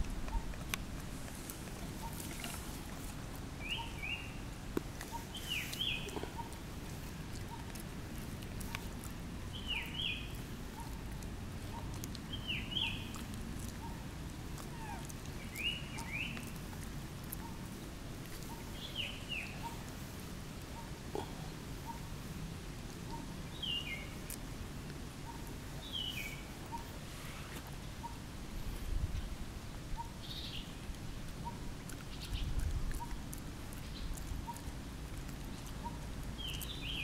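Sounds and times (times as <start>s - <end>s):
outdoor background noise: 0.0s - 37.0s
bird calling in paired chirps: 3.6s - 4.5s, 5.1s - 6.6s.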